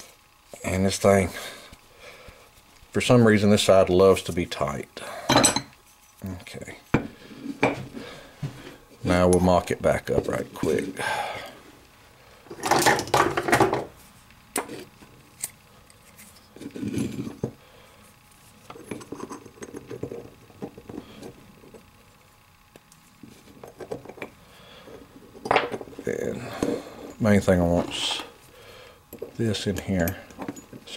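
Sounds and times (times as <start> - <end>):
metal parts clinking and tapping: 29.1 - 30.9.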